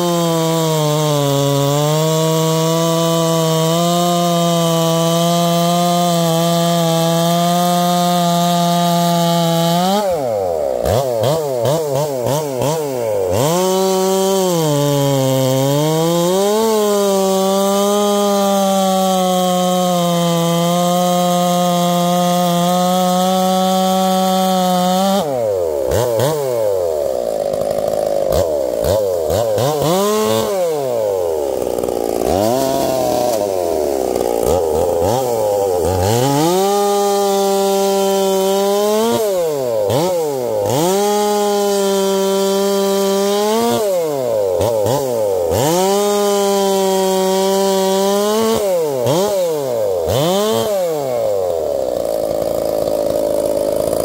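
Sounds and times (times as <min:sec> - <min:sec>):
chainsaw cutting log: 0:00.0 - 0:54.0.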